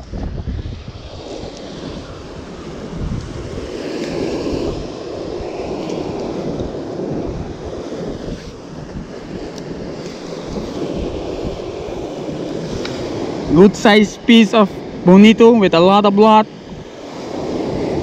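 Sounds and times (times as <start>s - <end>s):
surf washing on shore: 0.0s - 18.0s
wind on microphone: 0.0s - 18.0s.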